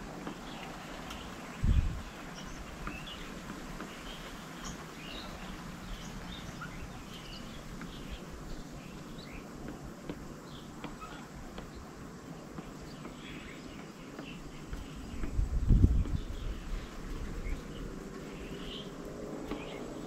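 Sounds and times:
birds chirping: 0.0s - 20.0s
steady background hiss: 0.0s - 20.0s.

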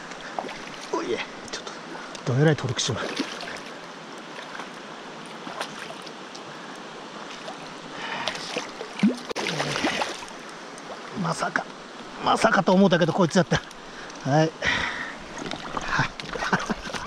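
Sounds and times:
river flowing: 0.0s - 17.0s
fish thrashing and splashing: 3.0s - 3.8s, 8.3s - 11.0s, 15.2s - 17.0s.

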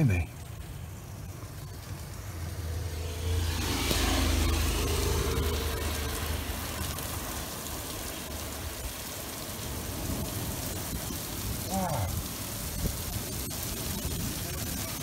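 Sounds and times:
rain hissing on a roof window: 0.0s - 15.0s
thunder rumbling: 0.0s - 15.0s.

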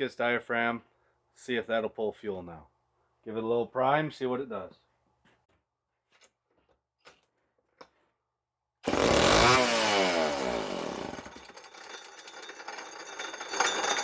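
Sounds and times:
chainsaw engine starting: 8.8s - 14.0s.

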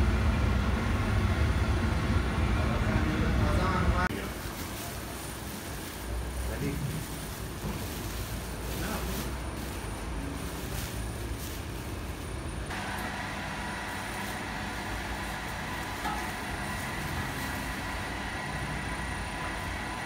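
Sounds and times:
dough mixer hum and whine: 0.0s - 4.1s, 5.0s - 20.0s
flour rustling from sack: 4.1s - 12.2s.

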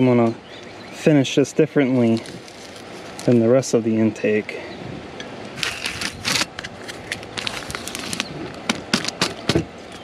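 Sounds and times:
tape peeling and crumpling: 2.1s - 3.4s, 5.6s - 9.5s.

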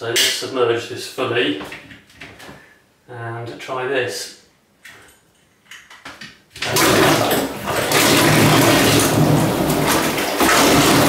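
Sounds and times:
water churning and splashing: 6.6s - 11.0s.

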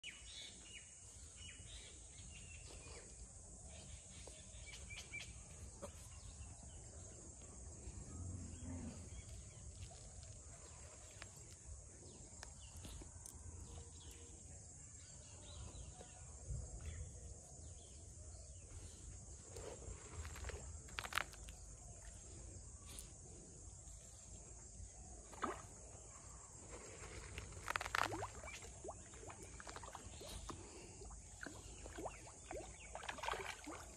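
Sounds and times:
high insect chorus: 0.1s - 33.9s
fish splashing water surface: 27.3s - 33.9s.

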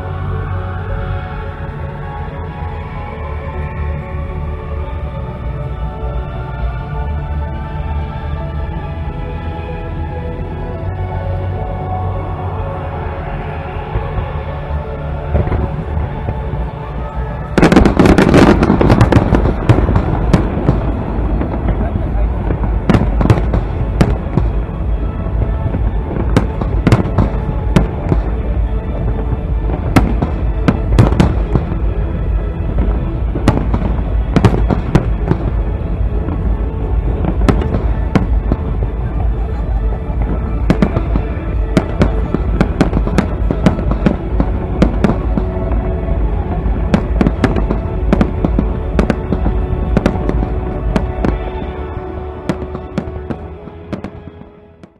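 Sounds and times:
music playing: 0.0s - 54.9s
fireworks cracks and bangs: 17.5s - 54.9s.

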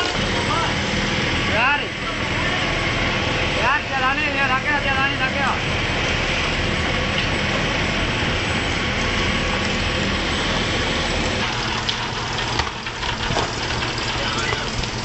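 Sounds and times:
boat engine running: 0.0s - 15.0s
water noise: 0.0s - 15.0s
wind: 0.0s - 15.0s.

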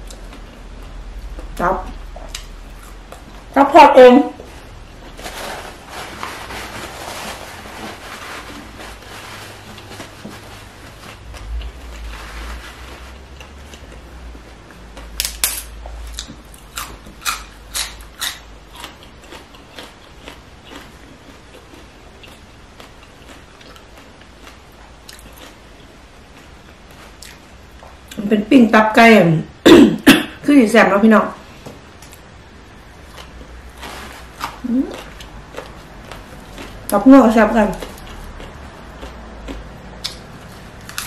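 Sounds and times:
paper napkin rustling: 4.3s - 13.7s, 33.6s - 34.7s
leaves snapping and crunching: 15.2s - 18.4s, 40.8s - 41.0s.

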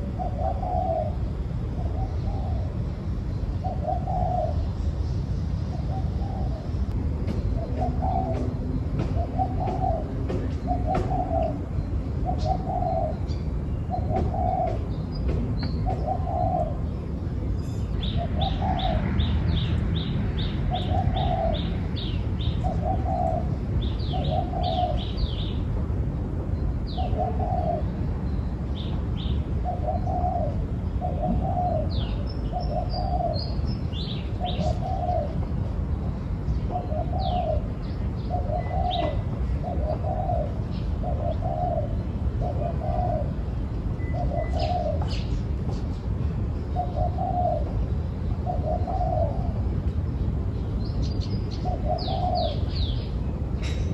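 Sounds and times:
dove cooing: 0.0s - 2.8s, 3.6s - 4.7s, 5.7s - 13.3s, 13.9s - 15.0s, 15.6s - 16.9s, 18.0s - 19.4s, 20.6s - 25.5s, 26.9s - 28.0s, 29.6s - 35.5s, 36.6s - 45.3s, 46.8s - 47.8s, 48.4s - 49.7s, 51.5s - 53.1s
small birds chirping: 26.5s - 53.9s.

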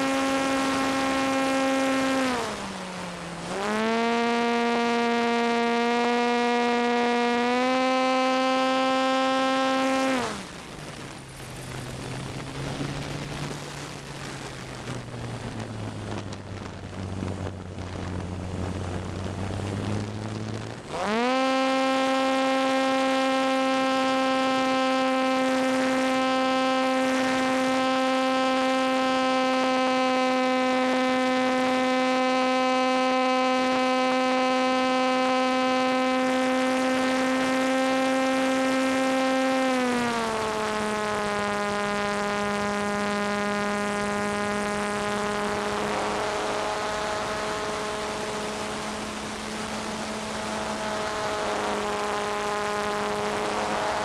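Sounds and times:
electric motor and propeller whine: 0.0s - 54.0s
wind rush: 10.2s - 21.3s, 40.0s - 54.0s.

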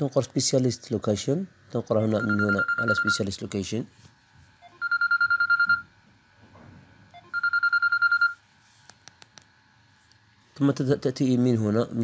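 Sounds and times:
telephone ringing: 2.1s - 3.3s, 4.6s - 5.9s, 7.1s - 8.4s.

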